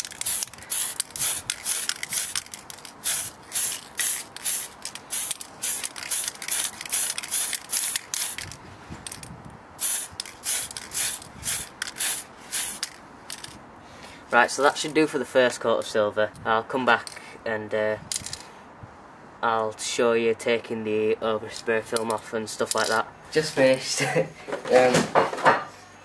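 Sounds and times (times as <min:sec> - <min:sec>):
spray paint can hissing: 0:00.0 - 0:09.2, 0:09.8 - 0:13.0.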